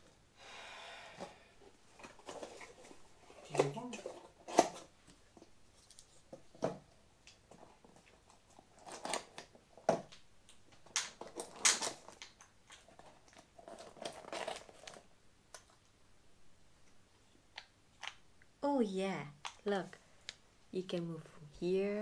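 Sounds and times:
packaging rustling: 7.5s - 10.0s, 10.8s - 15.1s.

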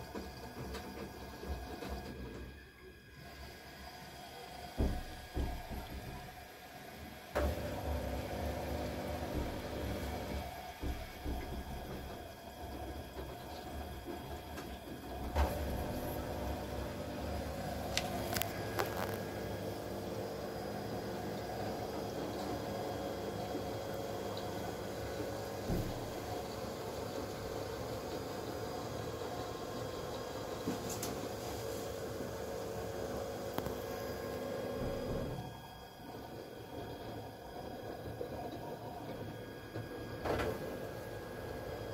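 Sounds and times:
washing machine humming: 0.0s - 41.9s
washing machine knock: 4.7s - 6.5s, 7.4s - 18.8s, 19.4s - 27.8s, 32.5s - 35.6s.

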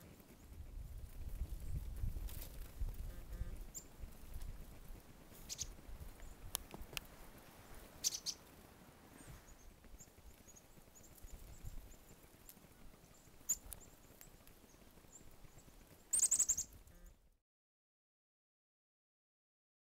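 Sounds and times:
chickadees calling: 1.5s - 17.2s.

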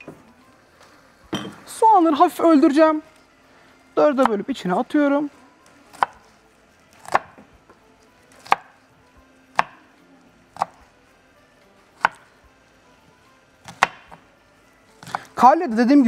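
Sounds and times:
knife chopping on wooden board: 5.9s - 6.3s, 7.0s - 7.5s, 8.3s - 8.8s, 9.5s - 9.9s, 10.6s - 10.8s, 12.0s - 12.3s, 13.6s - 14.2s, 15.0s - 15.3s.

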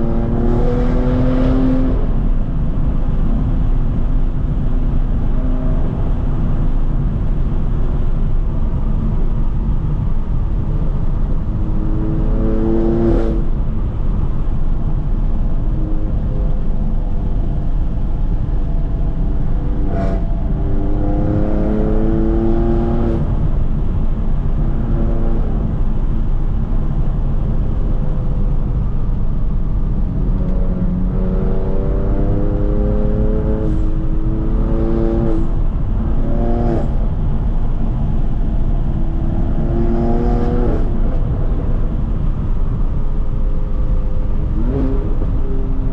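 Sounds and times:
car engine revving loud: 0.0s - 2.3s, 11.4s - 13.5s, 19.2s - 23.5s, 30.1s - 42.8s.

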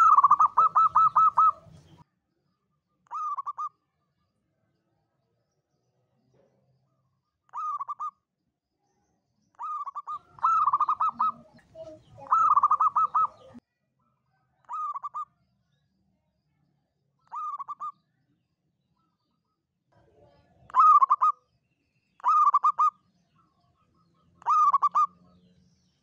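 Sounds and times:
dove cooing: 0.0s - 2.0s, 3.1s - 3.7s, 7.5s - 8.1s, 9.6s - 13.6s, 17.3s - 17.9s, 20.7s - 21.3s, 22.2s - 22.9s, 24.4s - 25.2s.

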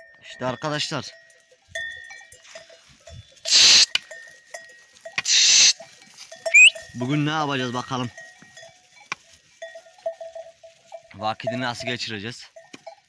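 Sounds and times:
small animal bells clinking: 0.0s - 13.0s
short hissing bursts: 3.5s - 3.9s, 5.2s - 5.8s
rising whistle: 6.5s - 6.8s.

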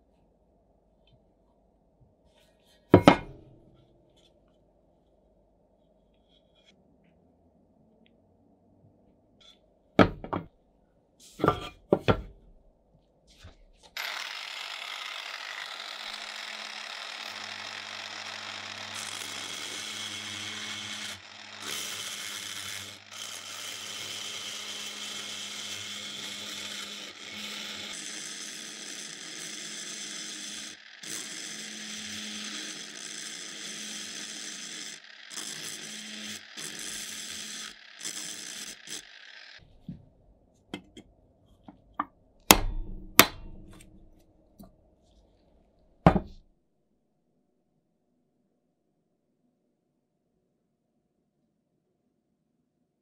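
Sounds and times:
knocks on metal housing: 3.0s - 3.4s, 42.5s - 43.8s, 46.1s - 46.4s
rotary tool grinding metal: 14.0s - 39.6s.

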